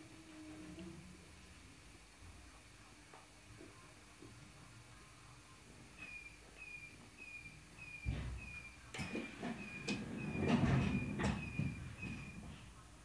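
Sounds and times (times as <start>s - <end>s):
sharp knocks and clatter: 8.0s - 12.6s.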